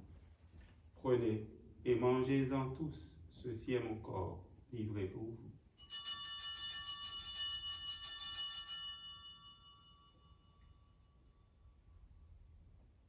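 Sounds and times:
altar bells jingling: 0:05.8 - 0:11.6.

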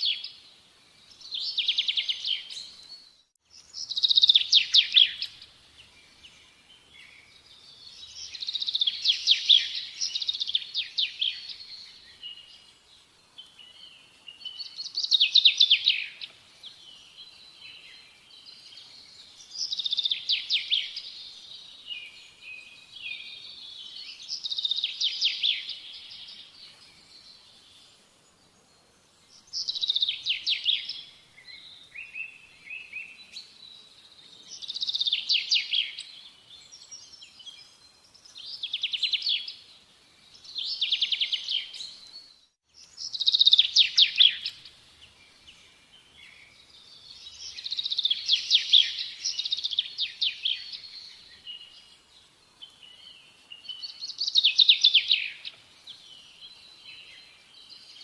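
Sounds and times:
songbird trilled chirps: 0:01.0 - 0:58.0.

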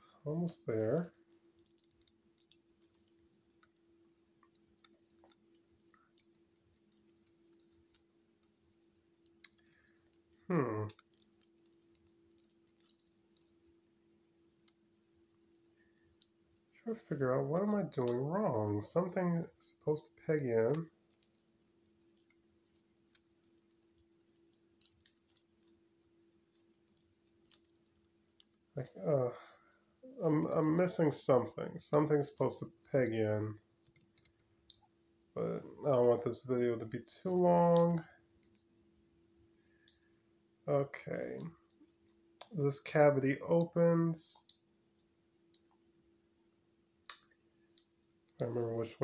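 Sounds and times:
low steady hum: 0:00.0 - 0:49.0
plastic toy parts clicking: 0:00.1 - 0:03.8, 0:09.2 - 0:13.7, 0:20.4 - 0:28.7.

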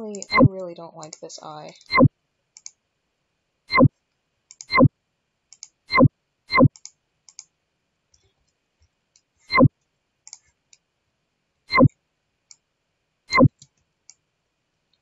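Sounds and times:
computer mouse clicks: 0:00.0 - 0:02.8, 0:04.5 - 0:04.9, 0:05.5 - 0:07.5, 0:10.3 - 0:10.8, 0:13.3 - 0:14.2.

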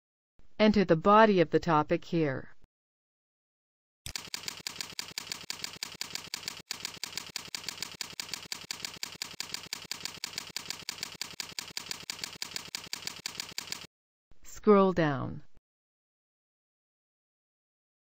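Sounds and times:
computer keyboard typing: 0:04.1 - 0:13.9.

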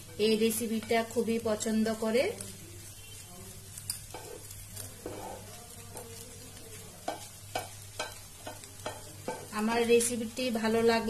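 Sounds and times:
spatula scraping a frying pan: 0:00.0 - 0:06.3.

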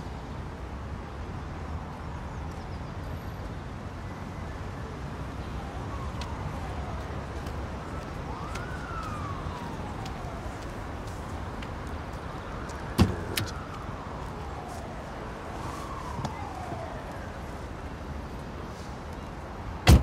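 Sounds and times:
street traffic noise: 0:00.0 - 0:20.0
faint siren wailing: 0:04.2 - 0:19.4.

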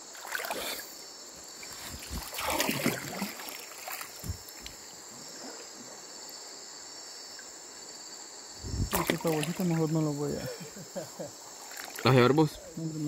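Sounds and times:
insects chirring: 0:00.0 - 0:13.0
water splashing around hands: 0:00.1 - 0:00.8, 0:01.7 - 0:05.6, 0:08.8 - 0:09.9, 0:11.6 - 0:12.2.

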